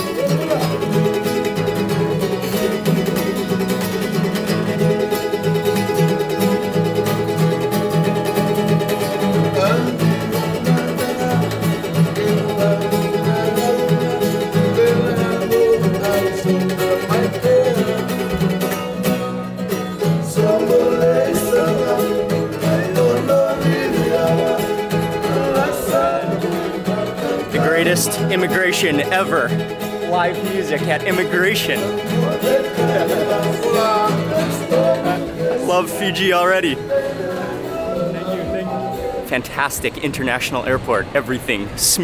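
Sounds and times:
acoustic guitars strumming: 0.0s - 42.0s
man singing: 8.1s - 29.7s, 30.3s - 42.0s.

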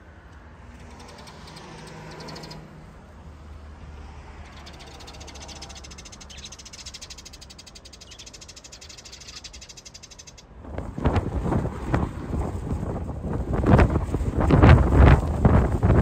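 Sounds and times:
wind buffeting microphone: 10.5s - 16.0s.

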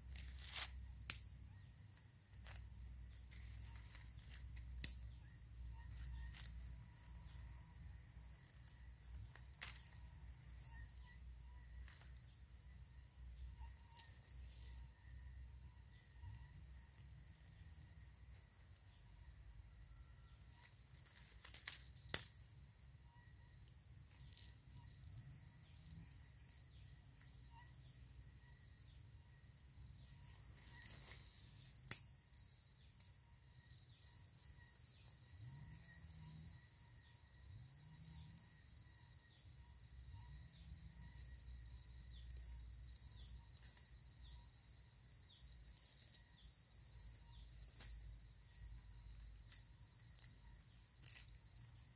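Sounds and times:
rustling in undergrowth: 0.0s - 1.1s, 1.9s - 19.4s, 20.3s - 22.2s, 24.0s - 28.8s, 29.9s - 32.5s, 41.2s - 51.9s
insects droning: 0.0s - 51.9s.

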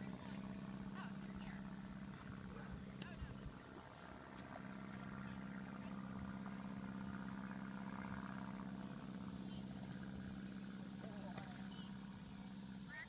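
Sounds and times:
insects chirping: 0.0s - 13.0s
steady low hum: 0.0s - 13.0s.

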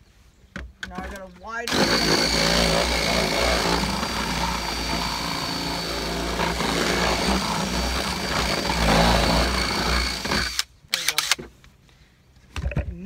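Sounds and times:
cordless drill motor whining: 1.7s - 11.4s.

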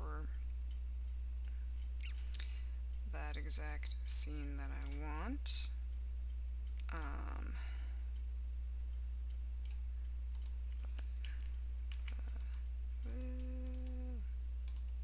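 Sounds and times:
low electrical hum: 0.0s - 15.0s
computer mouse clicks: 4.8s - 5.0s, 9.6s - 14.0s, 14.6s - 15.0s
person humming: 6.9s - 7.7s, 12.1s - 14.4s.

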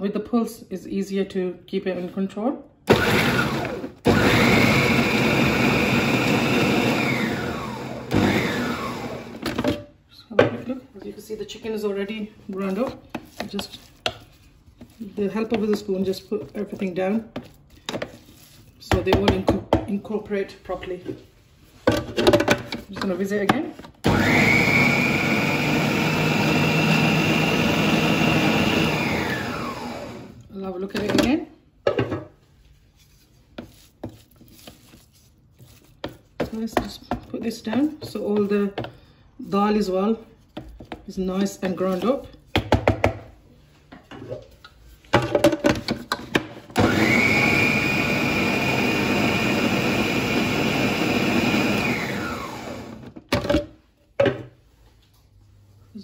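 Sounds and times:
food processor motor whine: 2.9s - 9.6s, 24.0s - 30.4s, 46.8s - 53.2s.

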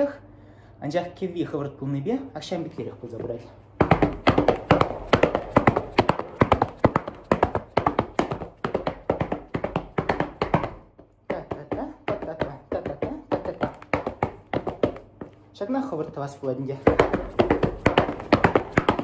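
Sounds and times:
boots stamping on a hard floor: 3.1s - 15.5s, 16.8s - 19.0s.

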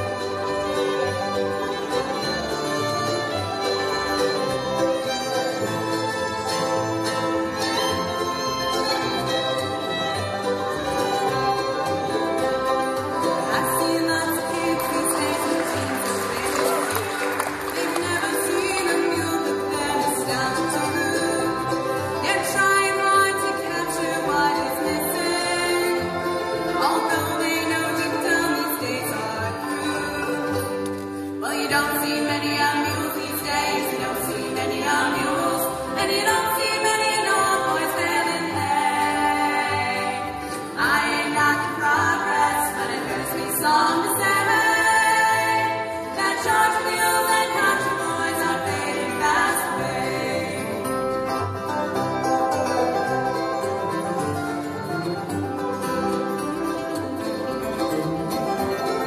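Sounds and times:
bluegrass band playing: 0.0s - 59.0s
women singing together: 13.4s - 30.7s, 31.4s - 51.0s.

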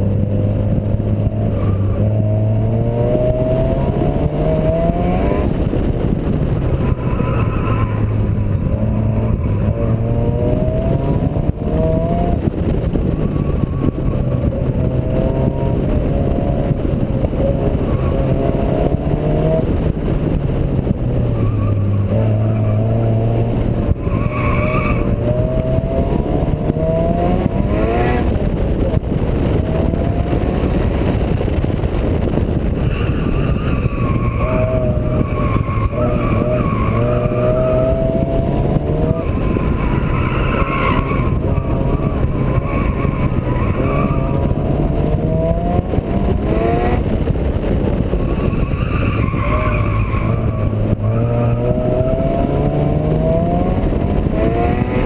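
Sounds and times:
car engine revving: 0.0s - 55.0s
wind and road noise: 0.0s - 55.0s.

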